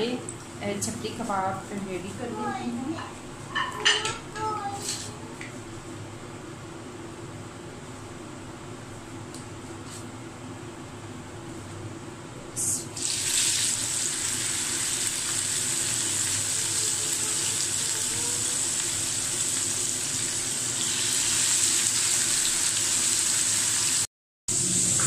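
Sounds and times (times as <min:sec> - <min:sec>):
meat sizzling in hot oil: 0:13.0 - 0:25.0.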